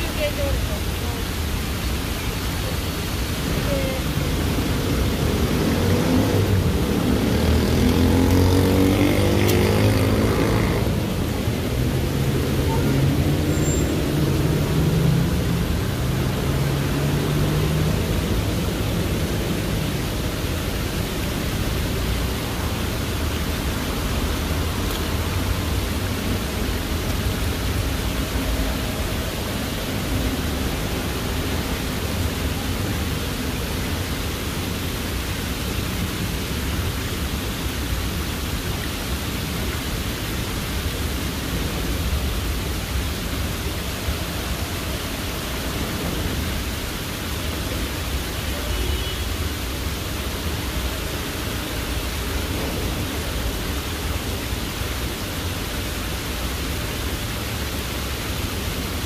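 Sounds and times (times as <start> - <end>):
water cascading down stone wall: 0.0 - 59.0.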